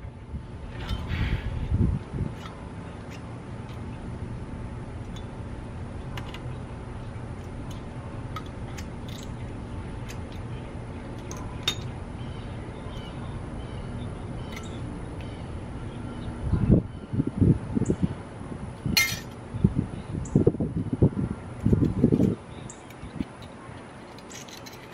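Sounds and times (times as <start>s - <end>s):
steady low rumble: 0.0s - 24.9s
sharp metal clink: 19.0s - 19.4s.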